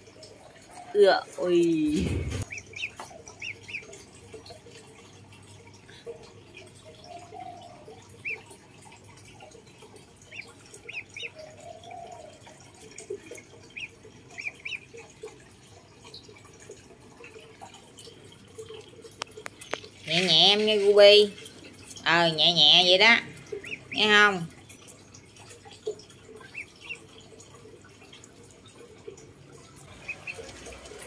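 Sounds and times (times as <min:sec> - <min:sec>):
duckling peeping: 0:02.1 - 0:03.8, 0:22.4 - 0:24.5.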